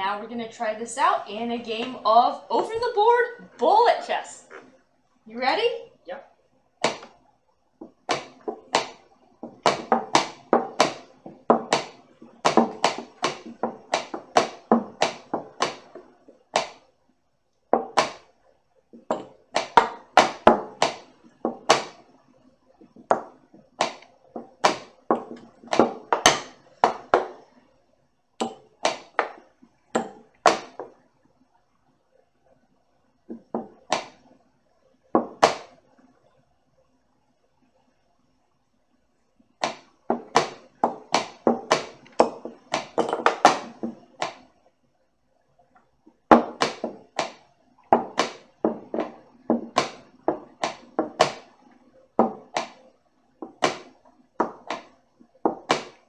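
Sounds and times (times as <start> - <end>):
chess pieces knocking on board: 6.8 - 7.2, 7.8 - 16.9, 17.7 - 18.3, 19.0 - 22.1, 22.8 - 27.5, 28.4 - 31.0, 33.3 - 34.2, 35.2 - 35.8, 39.6 - 44.5, 46.3 - 51.6, 52.2 - 52.8, 53.4 - 56.0
hands hitting chess clock: 6.8 - 7.2, 7.8 - 16.8, 17.7 - 18.3, 19.0 - 22.0, 22.8 - 27.4, 28.4 - 29.4, 30.0 - 31.0, 33.3 - 34.2, 35.2 - 35.8, 39.6 - 44.5, 46.3 - 51.6, 52.2 - 52.8, 53.4 - 56.0.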